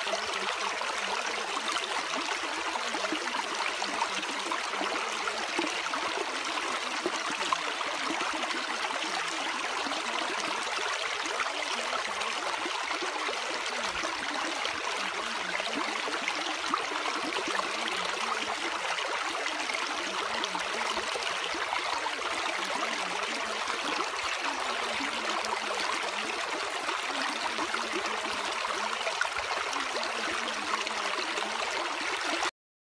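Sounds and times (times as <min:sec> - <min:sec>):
flowing water rushing: 0:00.0 - 0:32.5.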